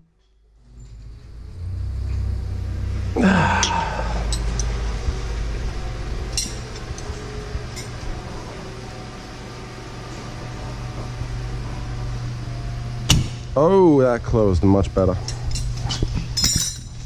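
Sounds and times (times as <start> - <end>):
steady low hum: 0.0 - 17.0
light clinks: 3.5 - 4.8, 15.2 - 17.0.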